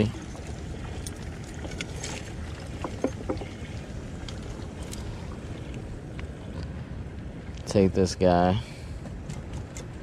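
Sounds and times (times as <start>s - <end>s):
water noise: 0.0s - 10.0s
wind: 0.0s - 10.0s
light knocks and taps: 2.8s - 3.5s.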